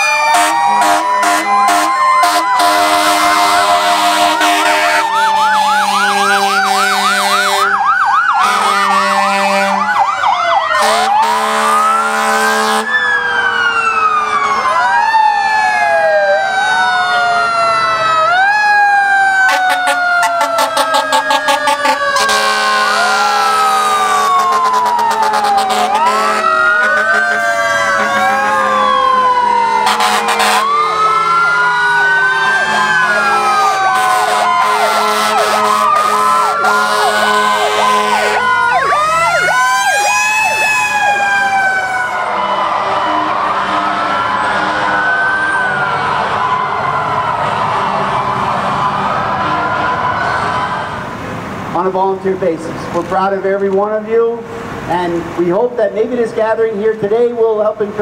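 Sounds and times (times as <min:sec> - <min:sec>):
fire truck sirens wailing and yelping: 0:00.0 - 0:58.0
horn blasts: 0:00.3 - 0:07.8, 0:08.4 - 0:10.0, 0:10.8 - 0:12.9, 0:20.4 - 0:23.0, 0:23.8 - 0:27.4, 0:29.8 - 0:30.7, 0:32.8 - 0:38.5, 0:43.1 - 0:45.0.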